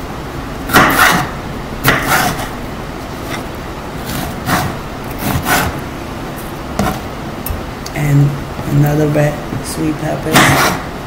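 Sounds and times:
knife slicing pepper: 0.7 - 2.5, 3.1 - 5.8.

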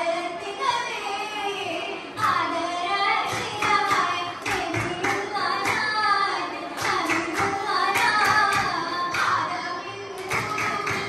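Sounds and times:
girls singing folk song: 0.0 - 11.0
hand claps: 3.3 - 6.0, 6.8 - 11.0.

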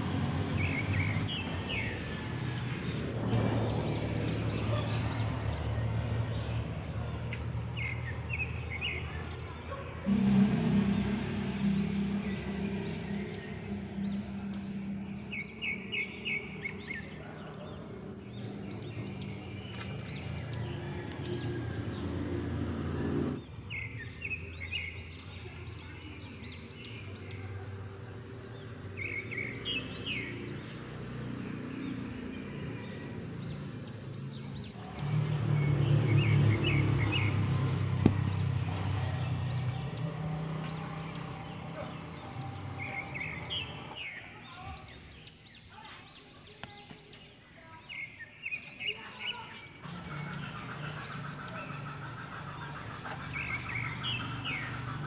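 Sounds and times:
steady low hum: 0.0 - 30.8.

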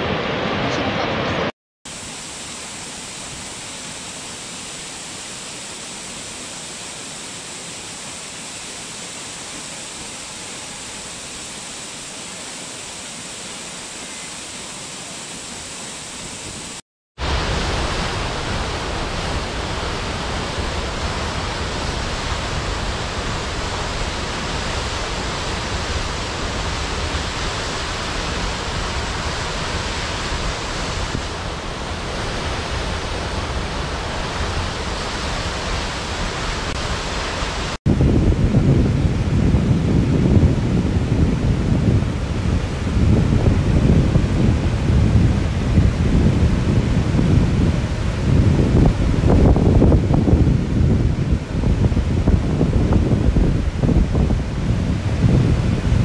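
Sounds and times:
waterfall rushing: 0.0 - 37.8.

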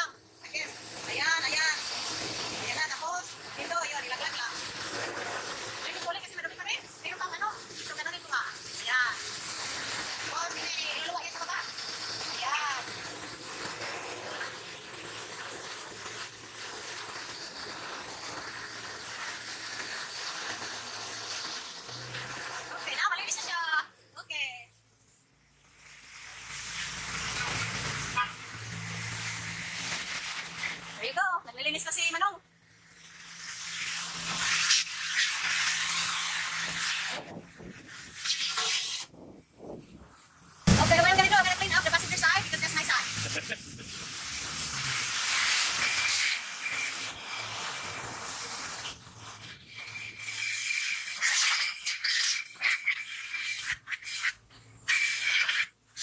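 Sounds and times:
car wash hiss: 0.0 - 23.3, 25.0 - 31.1, 32.6 - 39.2, 40.1 - 55.8.

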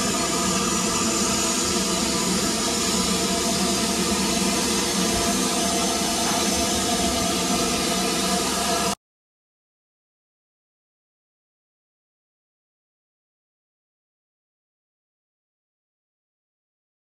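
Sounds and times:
steam hissing from locomotive: 0.0 - 9.0.

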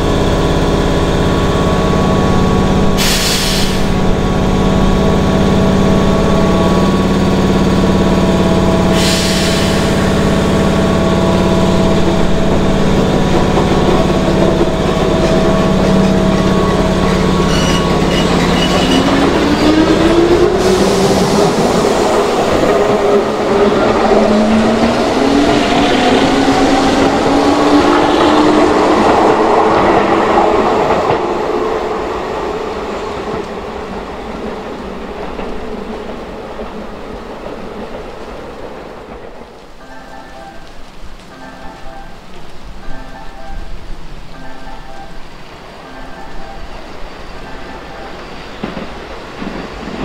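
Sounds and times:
train equipment humming: 0.0 - 50.0
air hissing: 3.0 - 4.0, 8.9 - 10.2.

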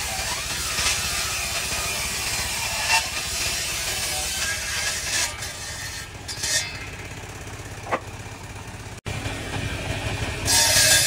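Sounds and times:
saw blade cutting wood: 0.0 - 8.3, 9.1 - 11.0
table saw humming: 0.0 - 11.0.

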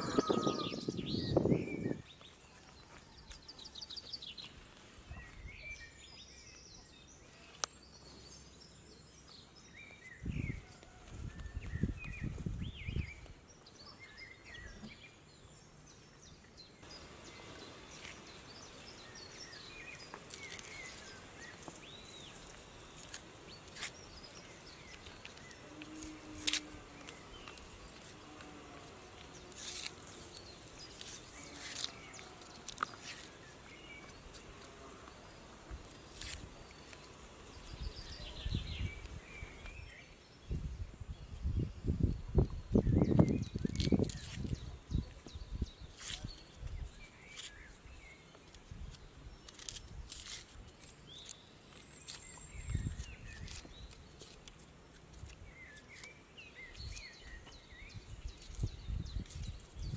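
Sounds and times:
bird chirps and calls: 0.0 - 2.2.

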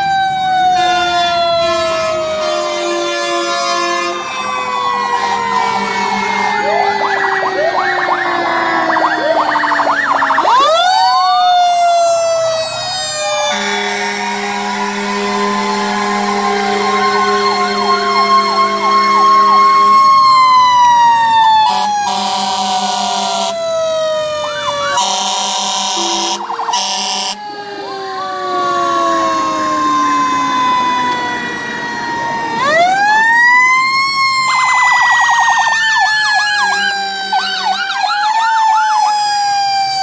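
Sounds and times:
fire engine sirens: 0.0 - 40.0
fire truck horn blasts: 0.7 - 7.0, 13.3 - 20.2, 21.6 - 23.6, 25.0 - 27.5.

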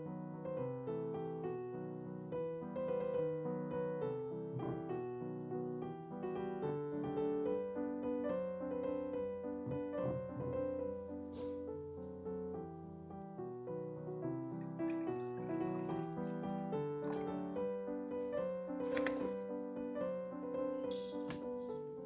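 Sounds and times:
soft piano music: 0.0 - 22.0.

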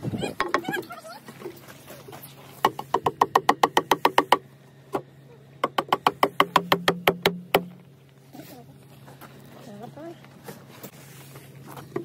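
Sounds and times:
mallet knocking on wooden staves: 2.6 - 4.4, 5.6 - 7.8.

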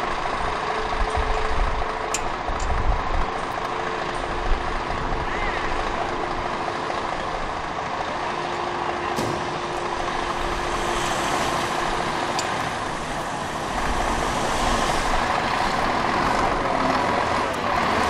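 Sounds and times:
diesel engine running: 0.0 - 18.0.

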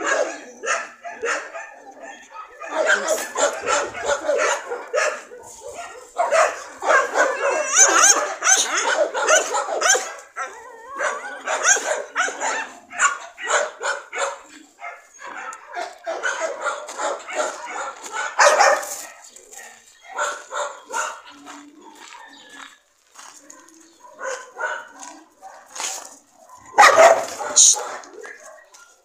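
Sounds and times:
dogs barking and yipping: 0.0 - 29.0
dogs whining: 6.8 - 16.6.

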